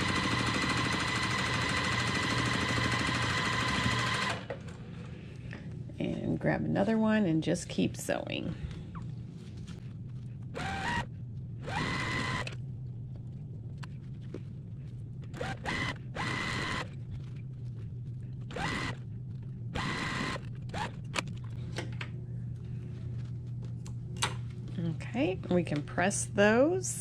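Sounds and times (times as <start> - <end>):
sewing machine stitching: 0.0 - 4.5, 10.6 - 12.6, 15.3 - 16.9, 18.5 - 19.0
steady low hum: 3.8 - 27.0.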